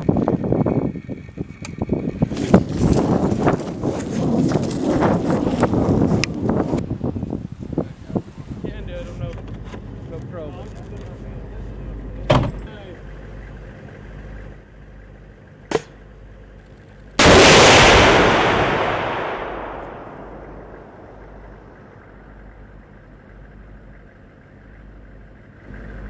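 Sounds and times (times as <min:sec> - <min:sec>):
missile launch blast: 0:17.2 - 0:21.8
missile rushing roar: 0:17.2 - 0:22.0.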